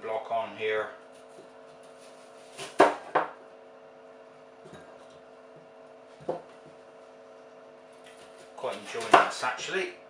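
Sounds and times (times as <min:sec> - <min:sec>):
faint steady hum: 0:00.0 - 0:10.0
knife knocking on wooden table: 0:02.8 - 0:03.4.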